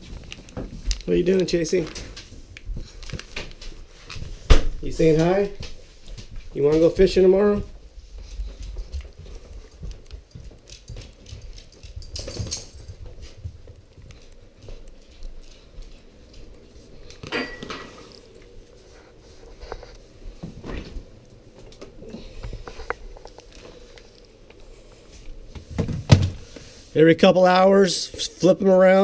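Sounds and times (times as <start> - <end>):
footsteps on hard floor: 1.7 - 21.1
clinking rattles: 11.4 - 13.1.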